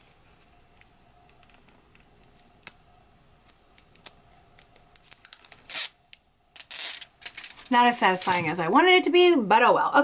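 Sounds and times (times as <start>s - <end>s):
plastic film ripping crackle: 5.0s - 6.0s, 6.6s - 8.4s
plastic film crackling: 6.6s - 8.6s.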